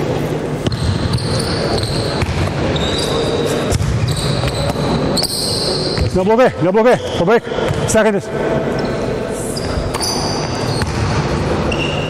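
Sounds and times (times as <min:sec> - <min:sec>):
sneaker squeaks: 0:00.6 - 0:06.3, 0:08.8 - 0:12.0.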